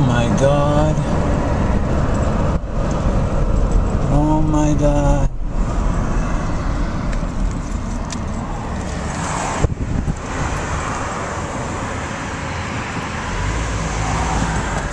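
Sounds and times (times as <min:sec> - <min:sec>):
road traffic: 0:00.0 - 0:14.9.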